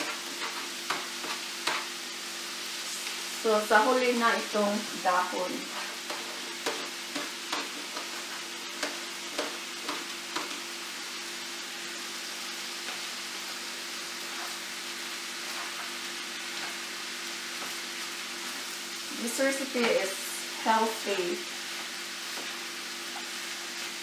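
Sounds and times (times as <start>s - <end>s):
spatula clicking and scraping: 0.0s - 2.0s, 5.6s - 10.7s, 14.2s - 14.7s, 15.4s - 16.9s
food sizzling in a pan: 0.0s - 24.0s.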